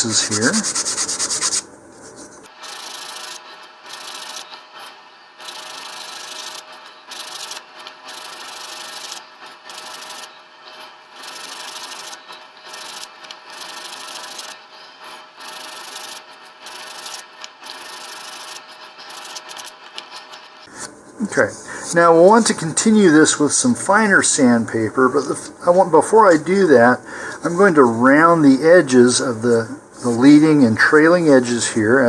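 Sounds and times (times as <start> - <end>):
sandpaper rubbing on wood: 0.0 - 2.5.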